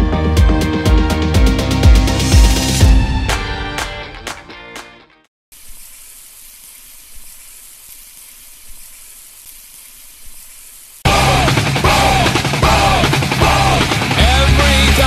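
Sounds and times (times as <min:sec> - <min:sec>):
steady sizzling hiss: 0:05.5 - 0:11.1.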